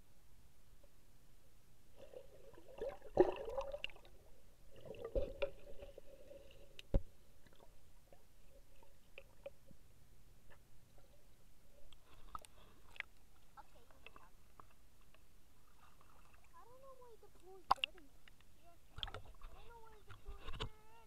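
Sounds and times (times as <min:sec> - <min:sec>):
bubbles gurgling: 0:02.0 - 0:06.8.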